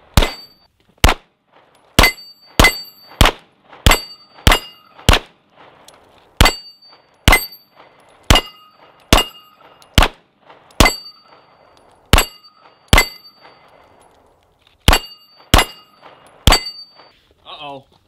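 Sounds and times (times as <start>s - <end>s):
pistol shots: 0.0s - 5.8s, 6.4s - 13.6s, 14.8s - 17.0s
steel plate target ringing: 0.2s - 0.7s, 2.0s - 3.2s, 3.9s - 5.0s, 6.4s - 9.8s, 10.8s - 13.7s, 14.9s - 17.2s.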